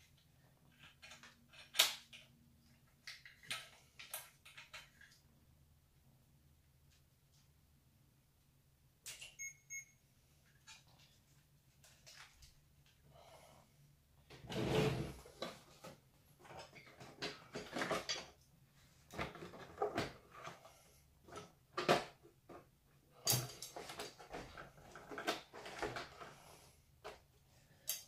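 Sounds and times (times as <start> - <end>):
plastic scrape: 14.4 - 15.8.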